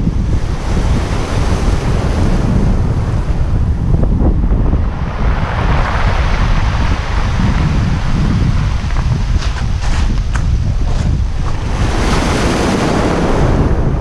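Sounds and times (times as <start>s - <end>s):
wind buffeting microphone: 0.0s - 14.0s
waves washing on pebbles: 4.8s - 13.9s.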